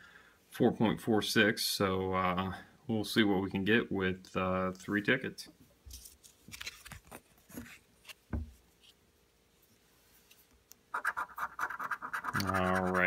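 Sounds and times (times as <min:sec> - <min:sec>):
soft thump: 0:08.3 - 0:08.6
coin scraping scratch-off ticket: 0:10.9 - 0:13.0
paper ticket rustling and tapping: 0:11.7 - 0:13.0.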